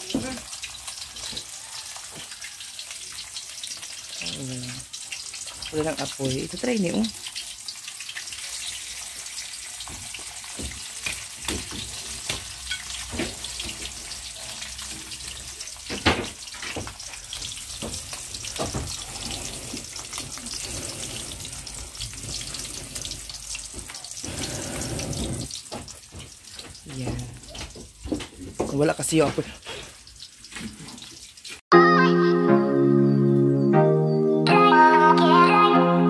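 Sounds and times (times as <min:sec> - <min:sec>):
fish sizzling in hot oil: 0:00.0 - 0:31.6
oil popping and crackling: 0:00.0 - 0:31.6.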